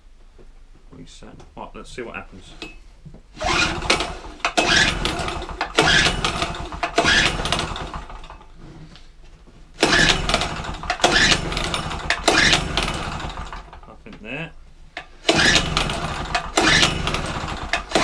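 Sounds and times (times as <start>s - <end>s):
engine cranking over: 3.4s - 8.6s, 9.8s - 13.9s, 15.0s - 18.0s
generator recoil starter pulls: 3.4s - 8.6s, 9.8s - 14.0s, 15.0s - 18.0s.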